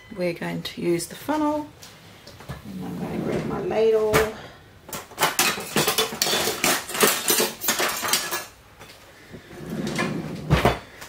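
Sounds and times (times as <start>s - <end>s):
metal utensils clinking: 5.0s - 8.6s.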